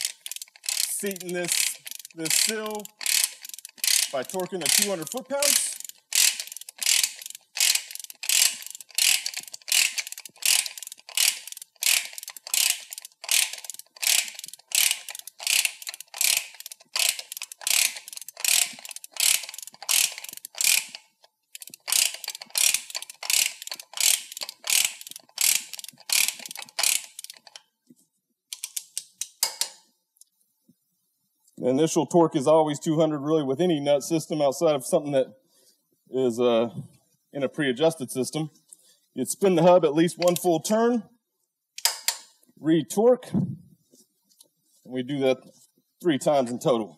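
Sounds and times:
ratcheting torque wrench clicking: 0.0s - 27.6s, 28.5s - 29.7s, 41.8s - 42.3s.

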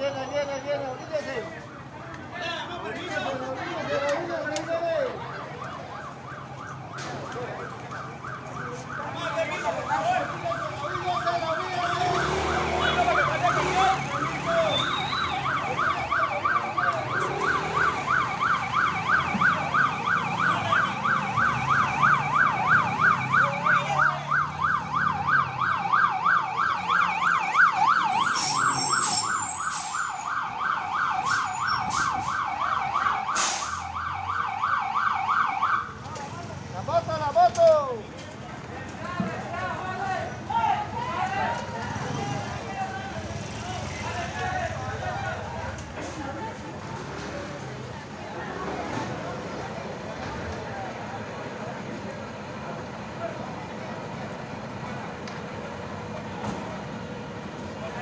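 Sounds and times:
fire engine siren yelp: 4.2s - 37.8s, 39.7s - 58.0s
high squeal: 28.2s - 30.1s.

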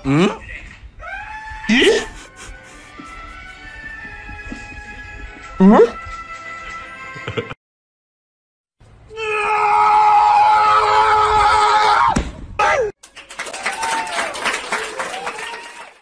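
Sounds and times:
falling cry: 1.0s - 4.1s, 9.1s - 12.9s.

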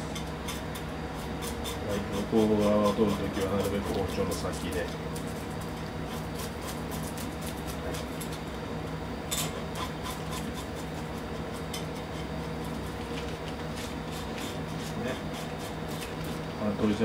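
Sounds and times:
knife scraping fish scales: 0.4s - 4.4s, 5.3s - 8.4s, 9.4s - 13.0s, 13.6s - 16.4s.

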